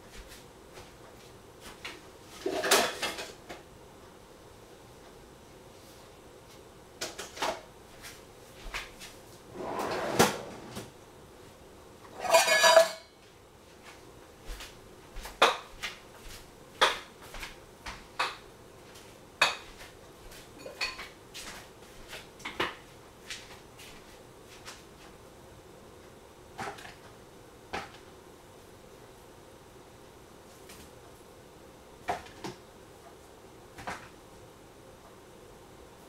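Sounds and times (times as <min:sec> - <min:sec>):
pots and jars clinking: 0:12.1 - 0:13.1, 0:20.6 - 0:21.0.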